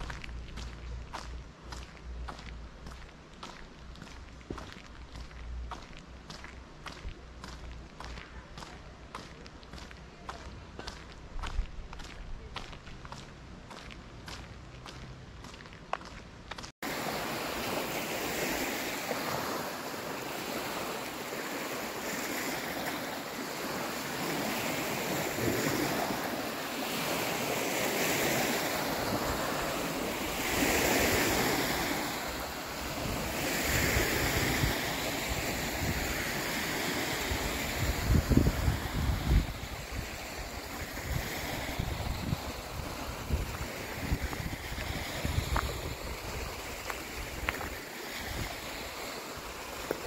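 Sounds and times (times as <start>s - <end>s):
faint footsteps on road: 0.0s - 16.8s, 37.3s - 50.0s
waves washing onto shore: 16.6s - 50.0s
wind buffeting microphone: 23.0s - 50.0s.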